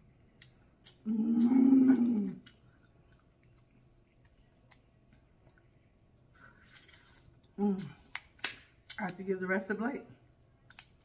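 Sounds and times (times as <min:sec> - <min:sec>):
woman moaning: 0:01.0 - 0:02.4.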